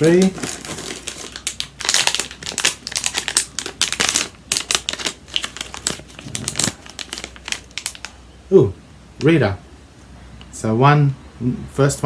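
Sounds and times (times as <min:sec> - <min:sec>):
foil wrapper crinkling: 0:00.0 - 0:08.2.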